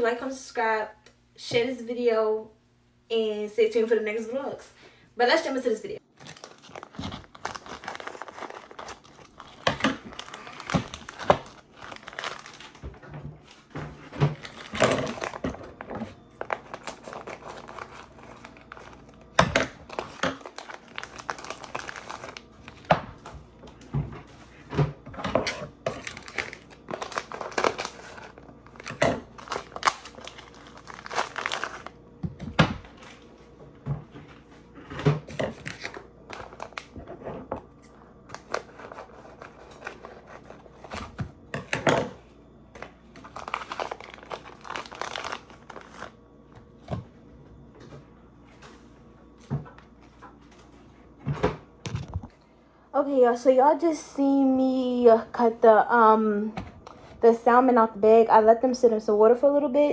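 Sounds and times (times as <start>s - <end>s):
plastic bags crinkling: 6.0s - 13.7s, 14.3s - 23.8s, 25.5s - 33.3s, 35.4s - 37.2s, 38.3s - 42.2s, 42.8s - 46.2s.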